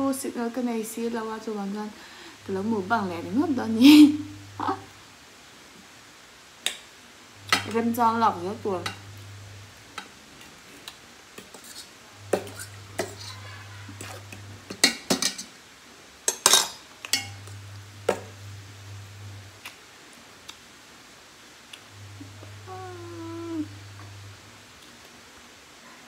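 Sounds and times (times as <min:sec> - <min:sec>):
cutlery clinking against a plate: 0:12.4 - 0:13.4, 0:14.0 - 0:15.5, 0:16.3 - 0:17.4.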